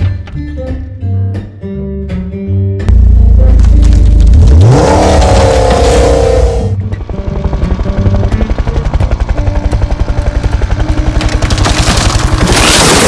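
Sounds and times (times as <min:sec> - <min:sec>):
background music: 0:00.0 - 0:13.0
helicopter rotor beating: 0:04.6 - 0:13.0.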